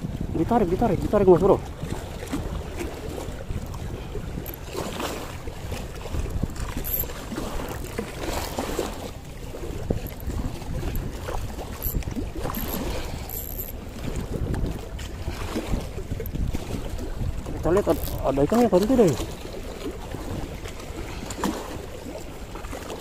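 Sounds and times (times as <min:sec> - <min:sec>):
small waves washing against concrete: 0:00.0 - 0:23.0
wind rumbling on microphone: 0:00.0 - 0:23.0.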